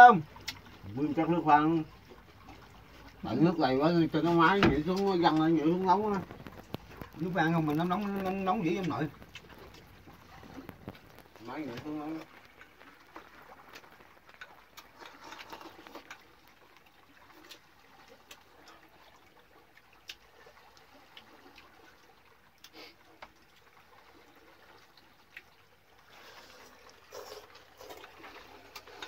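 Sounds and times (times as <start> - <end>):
water trickling: 0.0 - 29.0.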